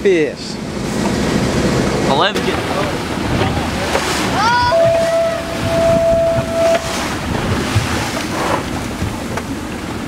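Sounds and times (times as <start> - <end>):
sea water lapping: 0.2 - 10.0
wind buffeting microphone: 0.6 - 10.0
steady whistle-like tone: 4.7 - 6.9.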